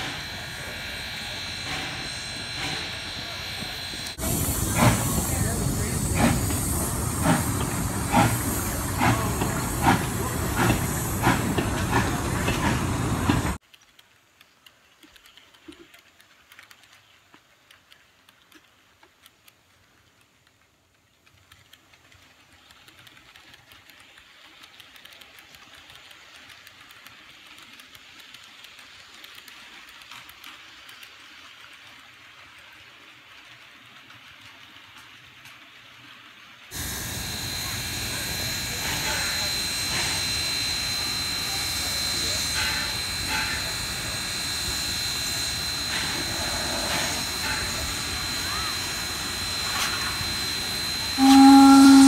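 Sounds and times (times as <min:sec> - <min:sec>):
steam locomotive chuffing: 0:00.0 - 0:13.6, 0:36.7 - 0:52.0
model train wheels rolling on track: 0:00.0 - 0:52.0.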